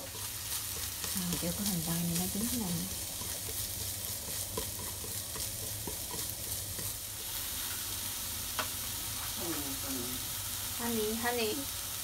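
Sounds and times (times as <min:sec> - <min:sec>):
onion sizzling in hot oil: 0:00.0 - 0:12.0
chopsticks clicking against pan: 0:00.7 - 0:07.0.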